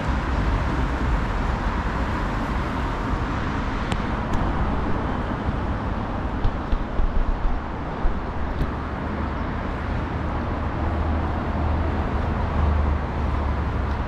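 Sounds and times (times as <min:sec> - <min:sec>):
road traffic: 0:00.0 - 0:14.0.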